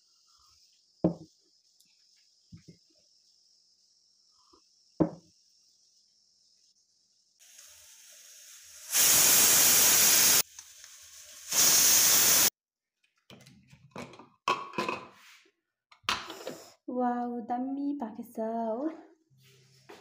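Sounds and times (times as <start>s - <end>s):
pressure cooker whistling: 7.4s - 10.6s, 11.4s - 12.5s.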